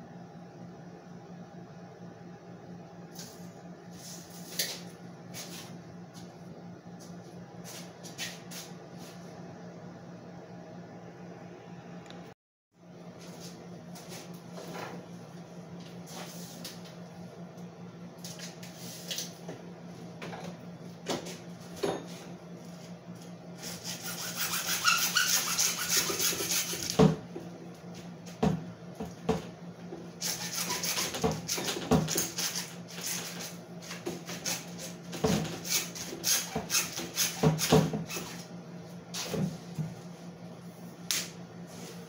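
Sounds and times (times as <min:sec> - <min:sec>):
hacksaw cutting plastic pipe: 0:23.8 - 0:27.0, 0:30.2 - 0:33.4.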